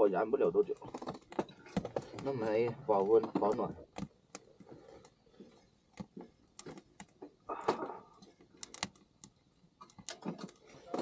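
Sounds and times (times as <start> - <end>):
burning wood crackling: 0.0 - 11.0
tongs clicking on metal stove: 8.2 - 11.0.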